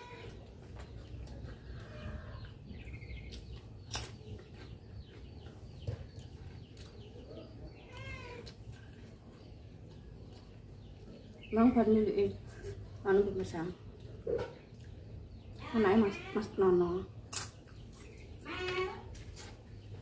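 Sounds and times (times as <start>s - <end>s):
birds chirping and calling: 0.0s - 20.0s.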